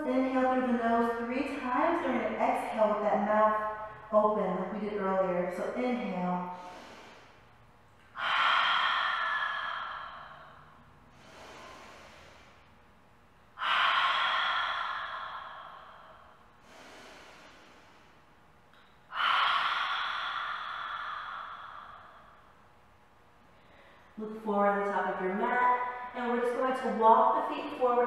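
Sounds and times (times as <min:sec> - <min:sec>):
woman exhaling forcefully: 0:06.4 - 0:07.4, 0:08.1 - 0:12.7, 0:13.6 - 0:18.2, 0:19.1 - 0:22.6
soft inhale through nose: 0:06.5 - 0:07.6, 0:08.2 - 0:12.8, 0:13.6 - 0:18.3, 0:19.2 - 0:22.5.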